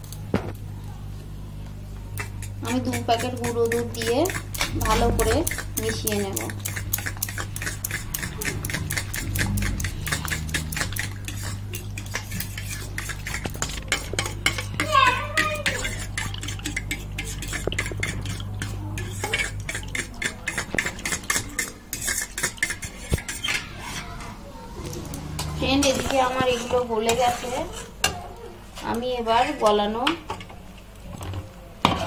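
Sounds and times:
low hum: 7.9s - 11.3s.

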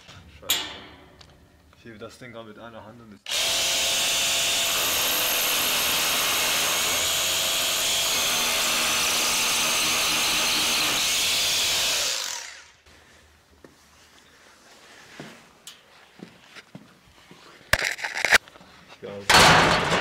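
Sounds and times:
electric power drill whirring: 3.3s - 12.8s.

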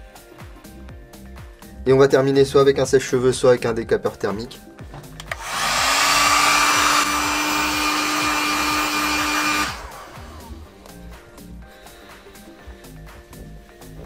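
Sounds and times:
hot-air blower running: 5.3s - 10.7s.

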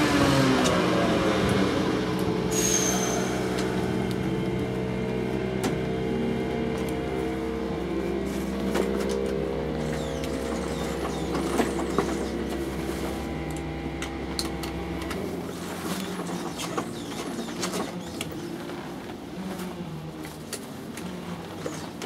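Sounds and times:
machine hum: 2.0s - 15.7s.

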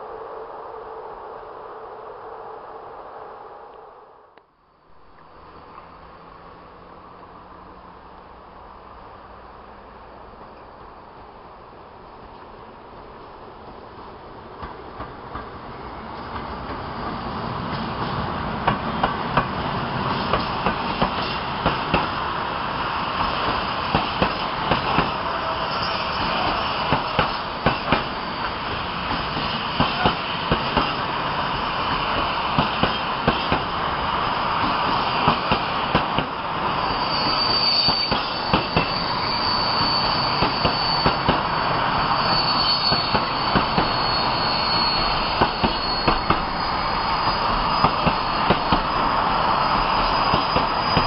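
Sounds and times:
high wheel squeal: 22.8s - 51.0s.

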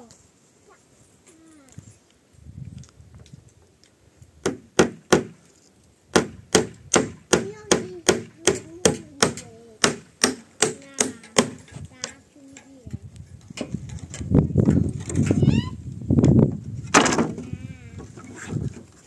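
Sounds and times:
hammer blows on wooden planks: 4.4s - 5.4s, 6.1s - 12.2s.

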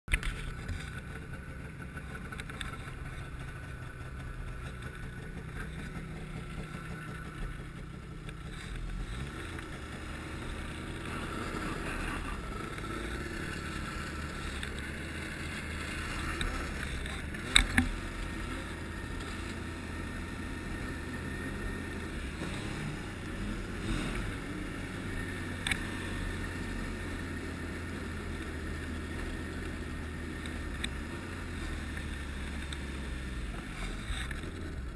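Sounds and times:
snowmobile engine running: 0.1s - 34.9s
sharp clicks: 25.6s - 25.9s.

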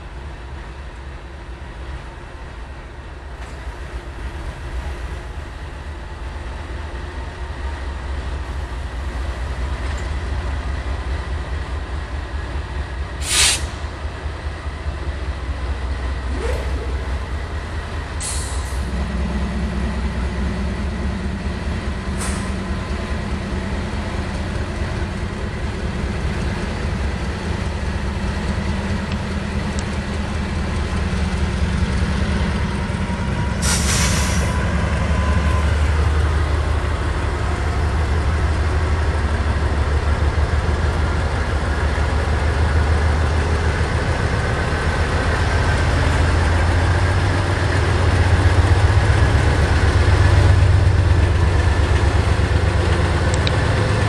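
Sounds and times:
diesel locomotive rumbling: 0.0s - 54.0s
air hiss: 13.2s - 13.8s, 33.6s - 34.6s.

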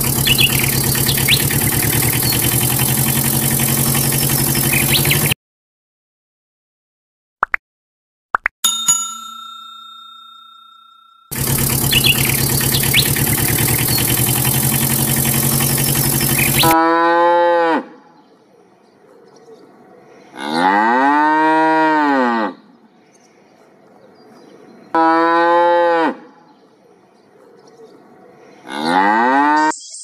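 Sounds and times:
cattle mooing: 16.7s - 17.9s, 20.4s - 22.6s, 28.7s - 29.7s.

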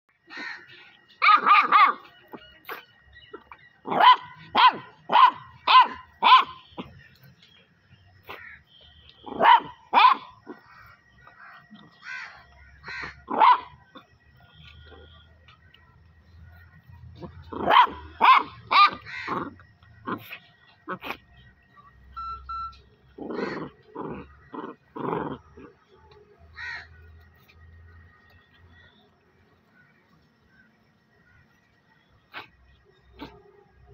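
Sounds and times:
puppy barking: 1.2s - 2.8s, 3.8s - 7.0s, 9.2s - 10.8s, 12.9s - 14.0s, 17.2s - 21.2s
clear chirp: 21.7s - 23.1s.

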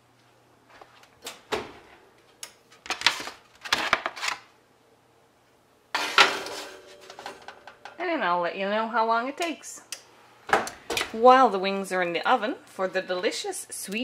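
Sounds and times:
baking sheet clattering: 6.0s - 8.0s.

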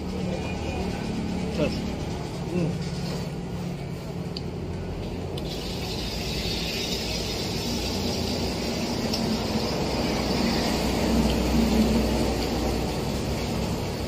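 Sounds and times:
street traffic rumble: 0.0s - 14.0s
hiss: 5.4s - 12.9s.

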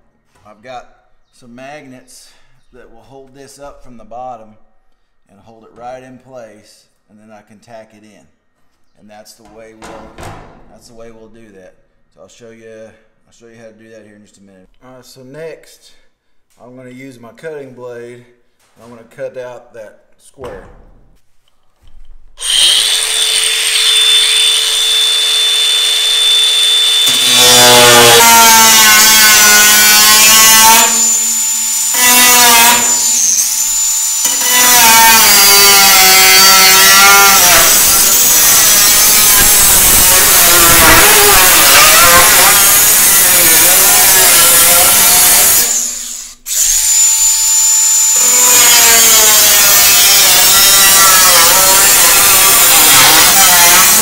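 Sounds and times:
angle grinder cutting steel: 22.4s - 54.0s.

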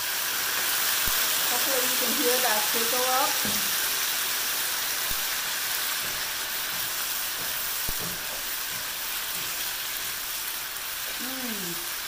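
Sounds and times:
sauce sizzling in a hot pan: 0.0s - 12.0s
utensils knocking against pan: 6.0s - 9.6s.

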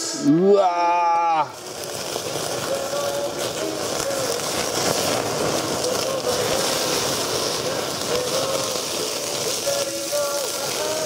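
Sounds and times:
fire crackling hiss: 0.0s - 11.0s
meat sizzling on grill over fire: 0.0s - 11.0s.

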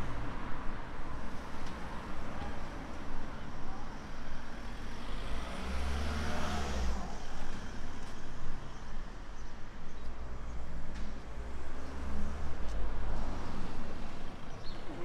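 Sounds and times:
rumble of cars: 0.0s - 15.0s
vehicle passing close: 5.1s - 7.7s.

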